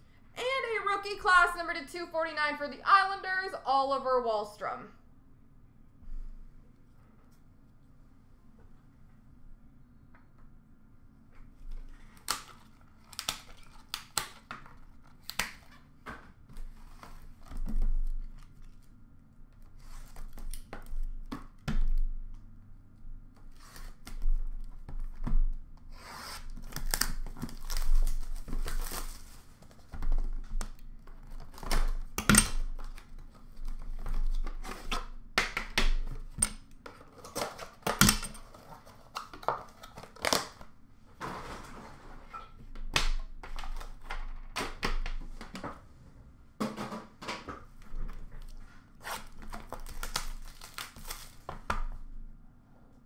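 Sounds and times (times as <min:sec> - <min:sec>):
plastic wrapping tearing: 0:12.0 - 0:15.8, 0:26.0 - 0:30.4, 0:49.0 - 0:51.5.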